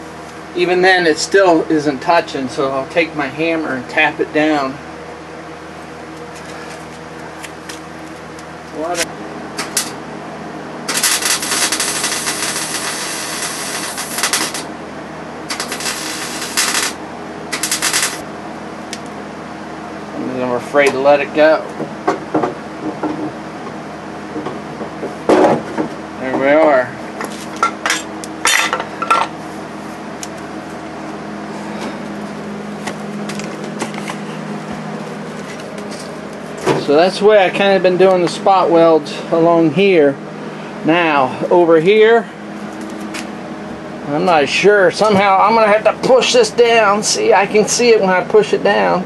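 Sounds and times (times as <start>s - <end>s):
steady welder hum: 0.0s - 49.0s
welder crackling: 10.8s - 14.7s, 15.4s - 18.2s.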